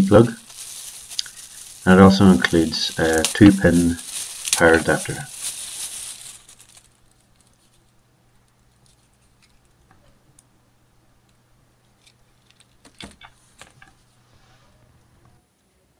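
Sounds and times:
plastic wrapping crinkling: 0.0s - 9.8s, 11.8s - 14.1s.

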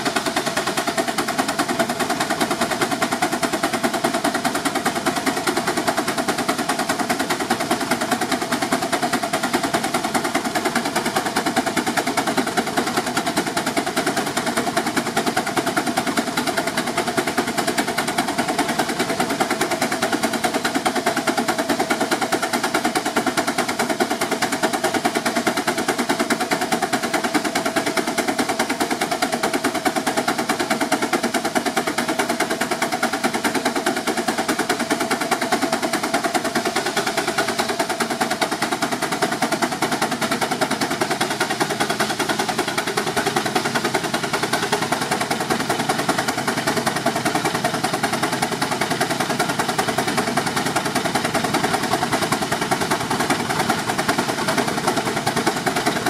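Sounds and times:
steam engine exhaust beating: 0.0s - 56.0s.

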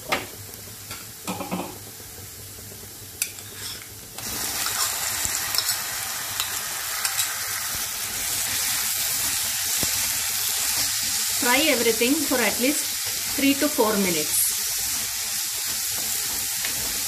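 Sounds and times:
onions sizzling in a wok: 0.0s - 17.0s
wooden spatula scraping a wok: 3.4s - 3.9s.

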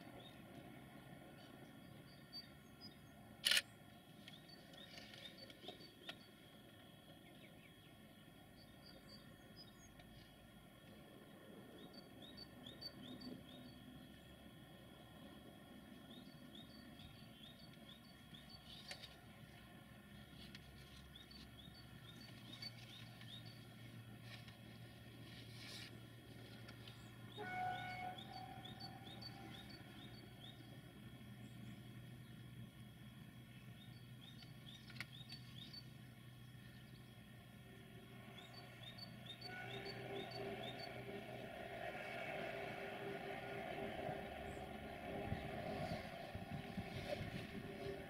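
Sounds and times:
distant train drone: 0.0s - 48.0s
small birds chirping: 33.4s - 37.3s.

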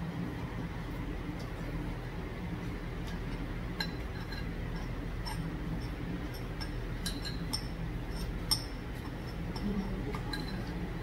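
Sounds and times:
low background hum: 0.0s - 11.0s
metal spoon clinking on bowl: 3.0s - 11.0s.

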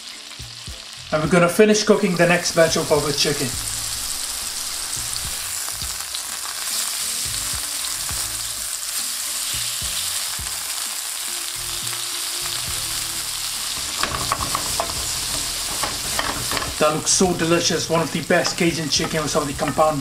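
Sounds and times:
chicken sizzling in a pan: 0.0s - 20.0s
tongs clicking against pan: 13.8s - 17.0s, 18.4s - 20.0s.

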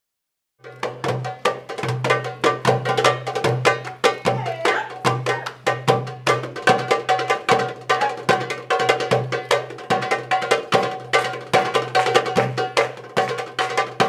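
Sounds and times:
goblet drums fast rhythm: 0.6s - 14.0s.

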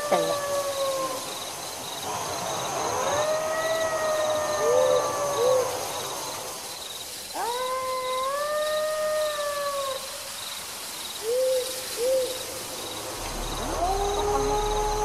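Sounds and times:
long drawn-out call: 0.0s - 1.4s, 11.2s - 15.0s
crickets trilling: 0.0s - 15.0s.

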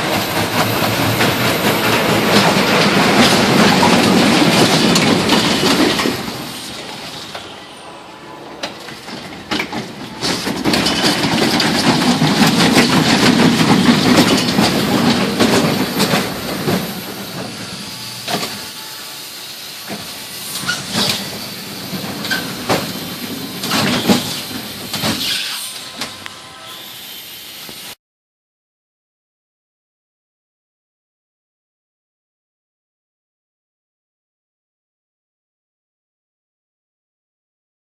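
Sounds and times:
roller coaster clattering on track: 0.0s - 7.6s, 8.6s - 18.6s, 19.9s - 26.2s.

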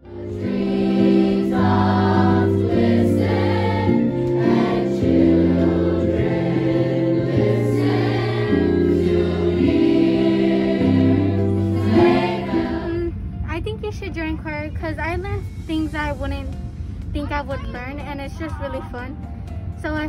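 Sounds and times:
choir singing chords: 0.0s - 13.2s.

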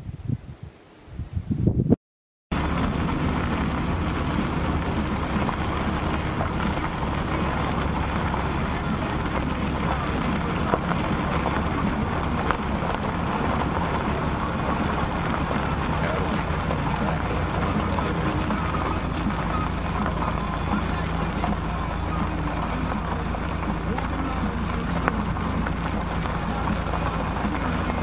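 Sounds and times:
low rumble: 1.2s - 28.0s
crackling hiss: 2.5s - 28.0s.

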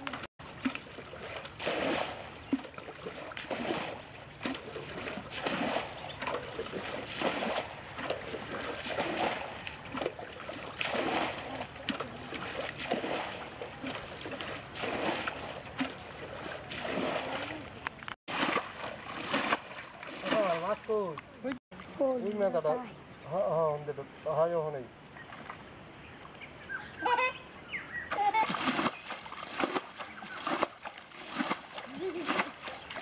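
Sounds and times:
water splashing from pot: 0.0s - 17.6s, 18.3s - 21.2s, 28.1s - 33.0s.

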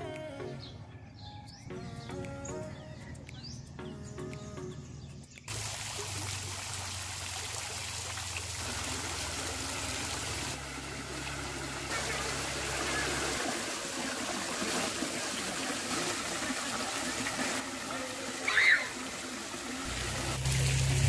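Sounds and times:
water splashing into pool: 5.5s - 21.0s
waterfall pouring into pool: 5.5s - 21.0s.

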